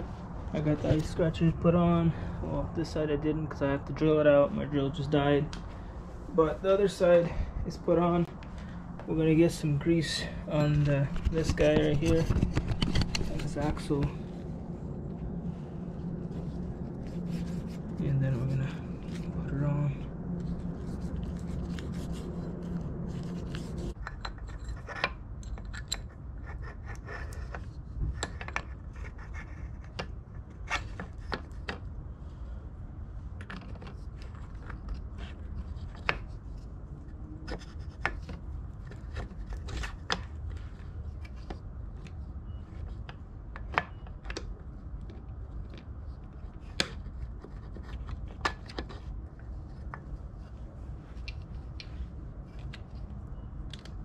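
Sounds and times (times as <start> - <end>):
rubbing of parts: 9.5 - 14.4, 15.6 - 32.0, 33.4 - 54.0.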